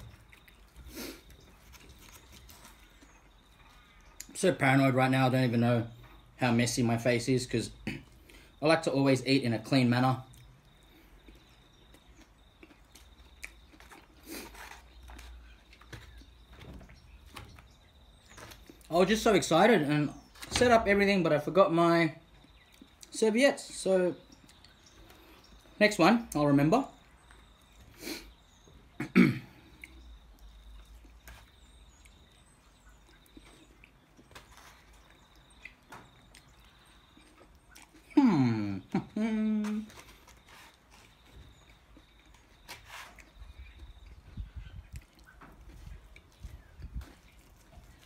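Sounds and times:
chewing: 0.0 - 4.3, 10.3 - 16.4, 29.6 - 38.2, 39.8 - 48.0.

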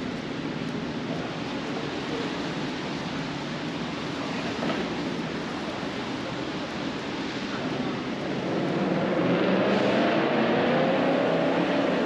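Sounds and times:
rain hiss: 0.0 - 9.1.

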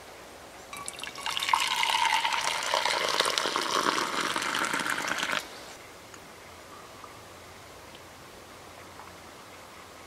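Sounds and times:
drink pouring into metal mug: 0.8 - 5.4
ringing tone of filling mug: 0.8 - 5.4.

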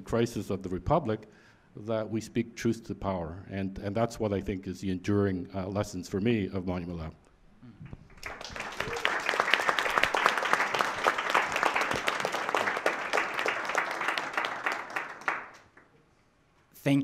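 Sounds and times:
audience applauding: 8.1 - 15.9.

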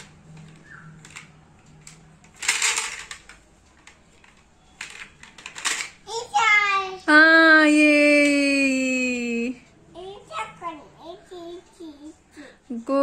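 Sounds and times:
plastic toy pieces clicking: 0.0 - 6.0.

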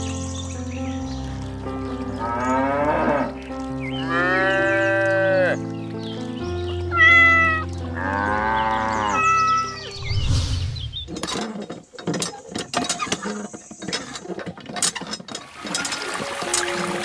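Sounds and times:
background music: 0.0 - 11.4, 15.5 - 17.0
cattle mooing: 2.2 - 3.4, 4.0 - 5.6, 7.0 - 9.9.

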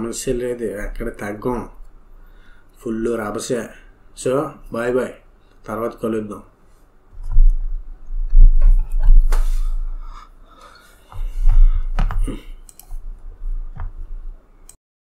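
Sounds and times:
microphone handling rumble: 7.2 - 10.1, 11.2 - 14.3.

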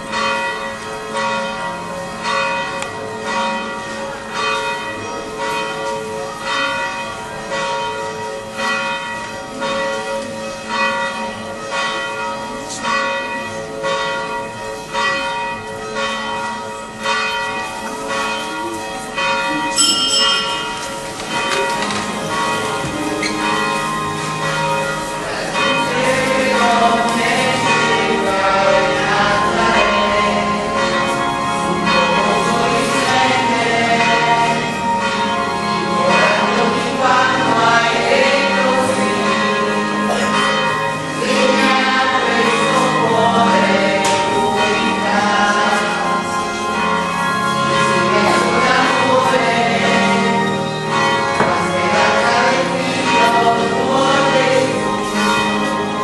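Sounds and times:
church bells ringing: 0.0 - 56.0
voices singing: 25.5 - 31.0, 31.6 - 34.9, 35.6 - 40.4, 41.0 - 46.5, 47.5 - 56.0.

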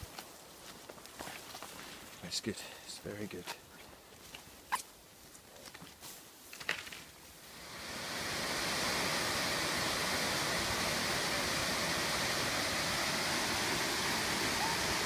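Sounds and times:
waterfall rushing: 7.5 - 15.0.

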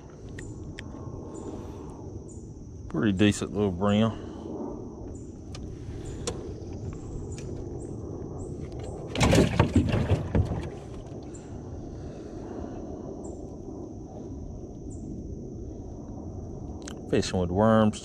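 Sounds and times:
low rumble: 0.0 - 18.0
knocks and rattling on boat: 8.8 - 11.2.

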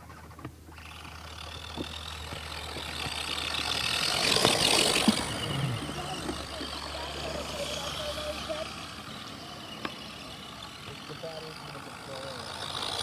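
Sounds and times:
rc truck motor whine: 0.0 - 13.0
splashing through mud: 0.7 - 8.0.

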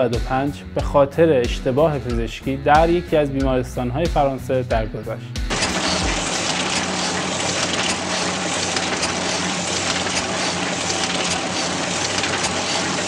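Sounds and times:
printing press clatter: 5.5 - 13.0.

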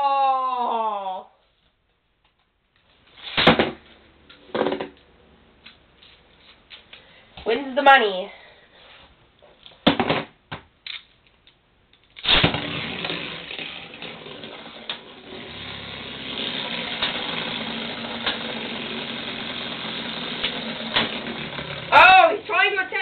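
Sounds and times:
spinning tops launched onto plastic: 12.1 - 21.9
spinning tops whirring and rattling: 12.2 - 22.4.

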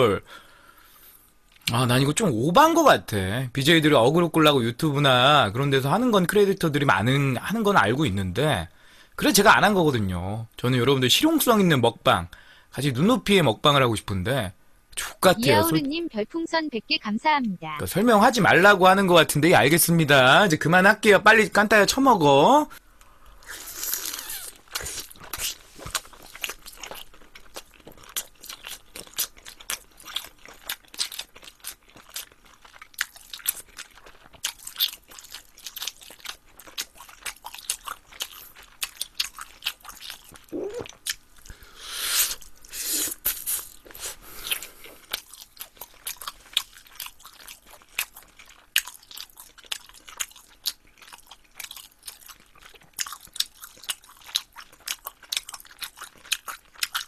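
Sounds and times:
chewing and crunching: 15.4 - 15.7, 23.0 - 41.6, 42.4 - 57.0.

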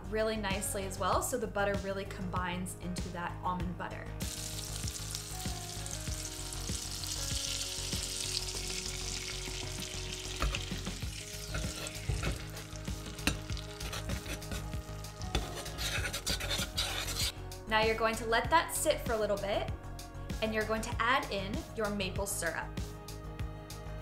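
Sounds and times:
butter sizzling in a saucepan: 4.2 - 17.4
spoon clicking and scraping a pan: 10.3 - 17.3.

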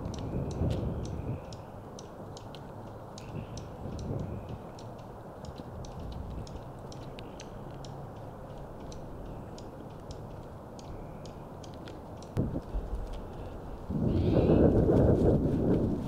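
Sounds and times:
high-pitched ticks and clicks: 0.0 - 13.5
low background rumble: 0.0 - 16.0.

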